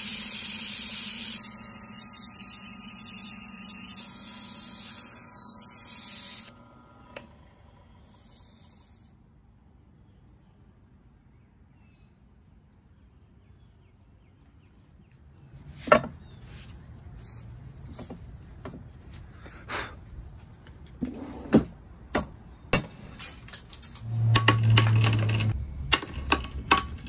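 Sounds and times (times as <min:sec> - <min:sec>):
steady high-pitched whine: 0:00.0 - 0:09.2
vise knocking on wooden workbench: 0:15.8 - 0:16.2.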